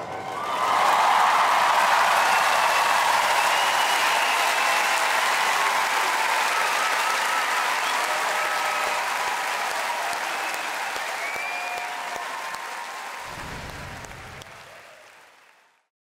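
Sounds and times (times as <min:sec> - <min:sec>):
audience cheering: 0:00.0 - 0:15.8
audience applauding: 0:00.0 - 0:15.9
whistle: 0:03.3 - 0:05.0, 0:11.1 - 0:11.9.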